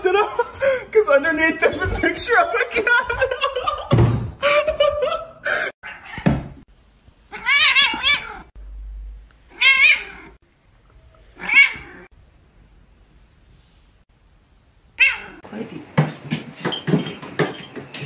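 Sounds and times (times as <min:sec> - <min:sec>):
cat meowing: 0:07.3 - 0:08.5, 0:09.5 - 0:10.4, 0:11.4 - 0:12.1, 0:15.0 - 0:15.4.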